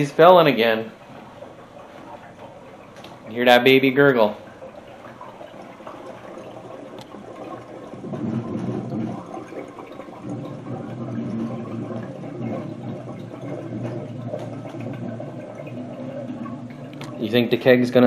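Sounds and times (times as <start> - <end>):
gas gurgling through cider in a keg: 0.0 - 18.0.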